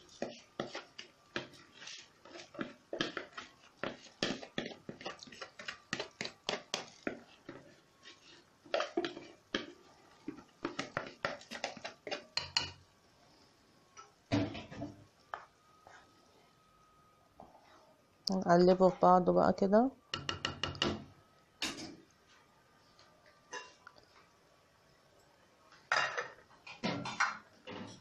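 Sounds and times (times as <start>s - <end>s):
spoon scraping cooking pot: 0.0s - 12.8s.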